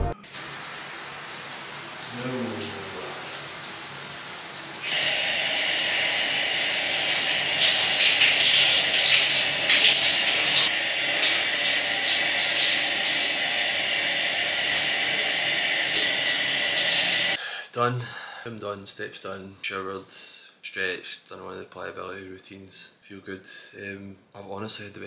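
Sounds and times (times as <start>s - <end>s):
shower water spraying: 0.3s - 17.4s.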